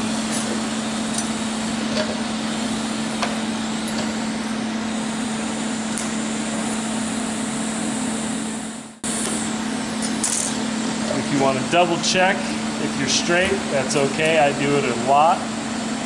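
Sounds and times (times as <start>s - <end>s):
welder humming and hissing: 0.0s - 16.0s.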